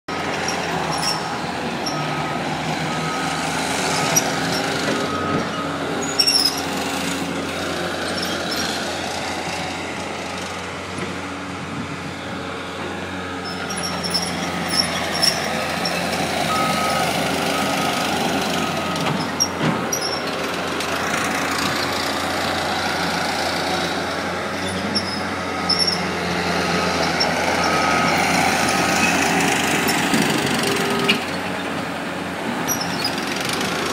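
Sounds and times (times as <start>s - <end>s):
loader diesel engine running: 0.1s - 33.9s.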